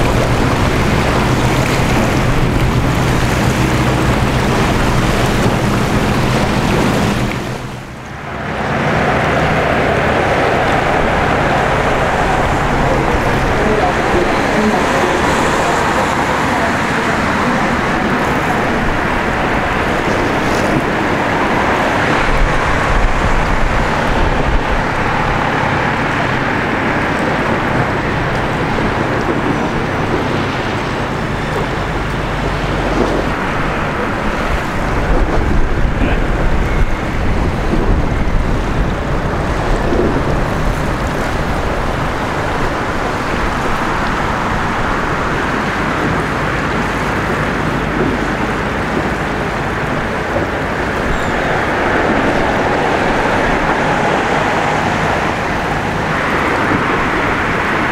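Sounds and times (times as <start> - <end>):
road traffic: 0.0 - 57.9
water: 0.0 - 57.9
wind on microphone: 0.0 - 57.9.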